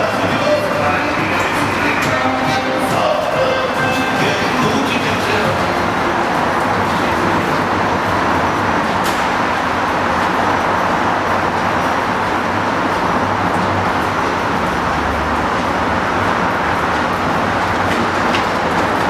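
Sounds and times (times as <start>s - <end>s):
traffic noise: 0.0s - 19.0s.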